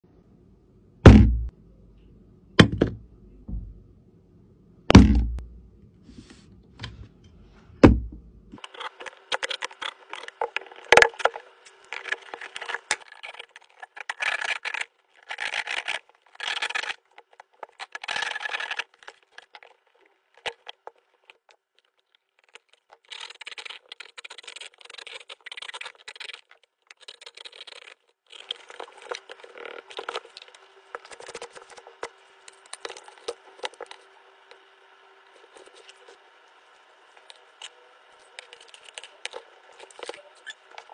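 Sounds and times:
heavy thumps: 1.0 - 1.5, 2.6 - 3.9, 4.9 - 5.7, 7.8 - 8.4.

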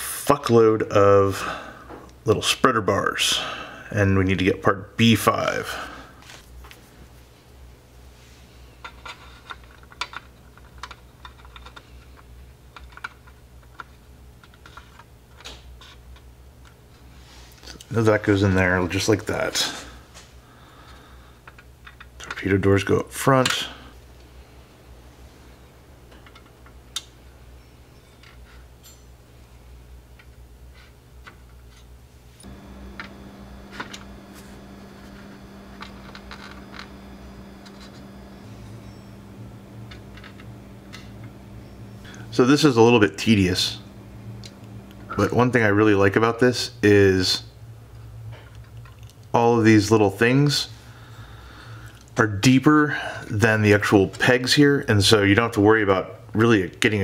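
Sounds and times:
low steady hum: 0.0 - 57.0
plastic parts clicking and tapping: 8.8 - 16.2.

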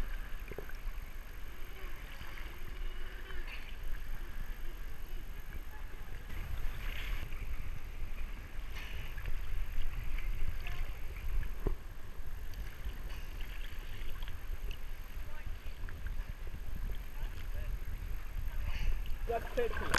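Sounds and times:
sea water sloshing and lapping: 0.0 - 19.9
water splashes: 0.0 - 19.9.

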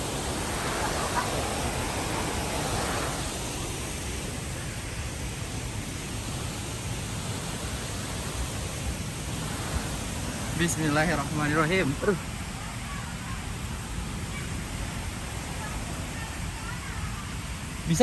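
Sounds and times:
waterfall rushing: 0.0 - 18.0.

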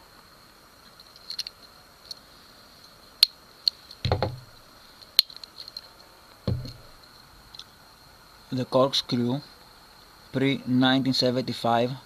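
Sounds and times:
faint high whine: 0.0 - 12.0
dull knocks on wooden table: 4.0 - 4.5, 6.5 - 6.9.

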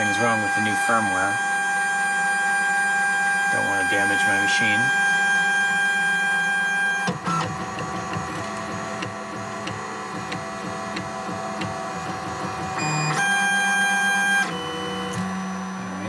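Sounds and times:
motor whine: 0.0 - 16.0
uneven stepper motor noise: 0.0 - 16.0.

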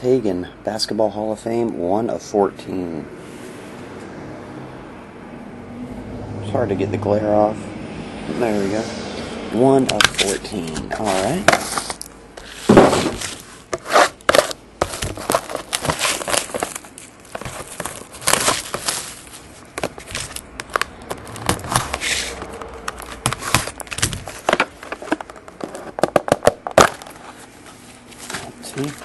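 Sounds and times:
plastic wrap crinkling: 10.1 - 29.0
cardboard box scraping: 10.2 - 26.1.

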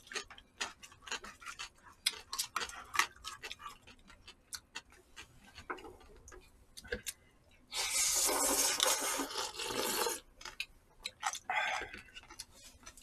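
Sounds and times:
loud slurping of noodles: 7.7 - 10.2.

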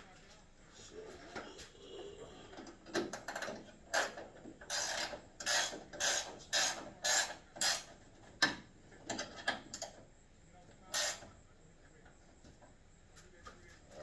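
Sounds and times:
ratchet wrench clicking: 3.2 - 7.9, 11.0 - 11.2.

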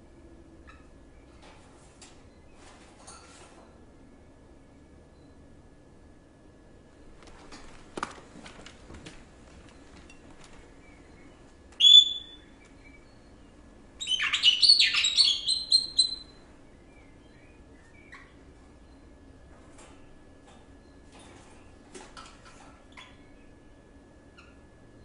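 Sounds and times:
bird chirping: 10.8 - 19.2
twittering run of high chirps: 14.0 - 16.4.

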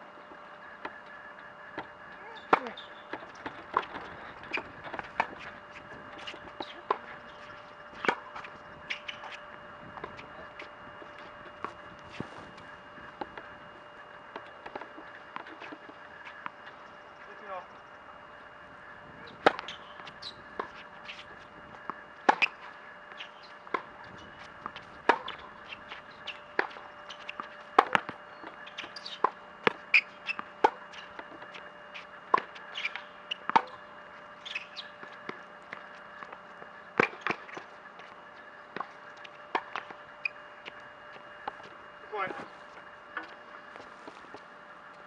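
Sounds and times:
tennis ball bouncing on court: 1.8 - 13.5, 19.3 - 31.6, 32.3 - 33.8, 38.7 - 43.4.

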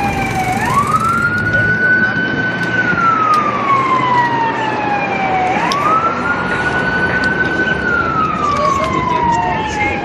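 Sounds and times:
steady rushing noise: 0.0 - 2.9
vehicle siren wailing: 0.0 - 10.0.

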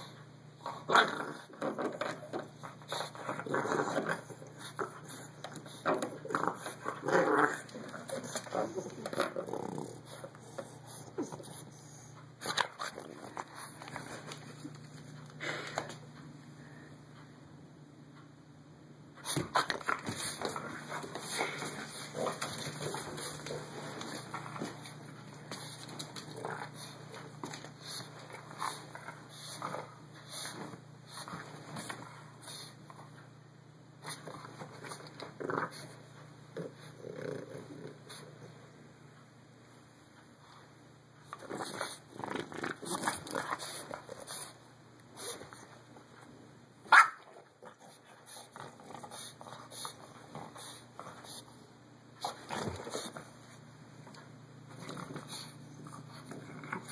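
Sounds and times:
dog grunting and breathing: 20.1 - 31.4, 34.9 - 38.6
dog barking: 46.9 - 47.2.

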